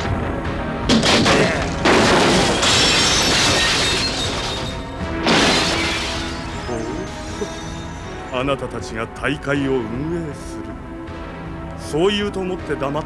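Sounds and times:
tense background music: 0.0s - 13.0s
wooden table smashing: 0.9s - 7.2s.

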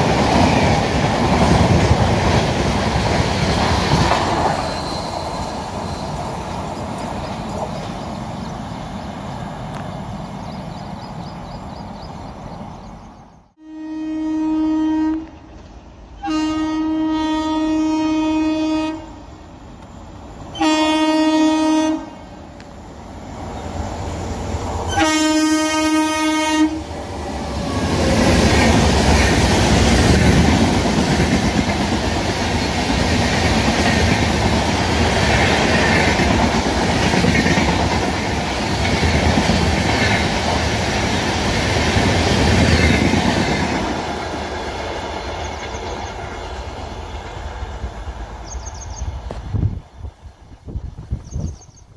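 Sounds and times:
train wheels rushing on rails: 0.0s - 13.6s, 17.2s - 51.7s
locomotive horn blasts: 13.6s - 15.4s, 16.2s - 19.3s, 20.6s - 22.3s, 24.9s - 26.8s.

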